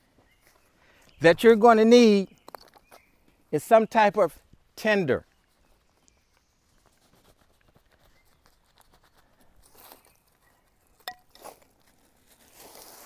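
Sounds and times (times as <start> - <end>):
rustling: 6.6 - 13.0.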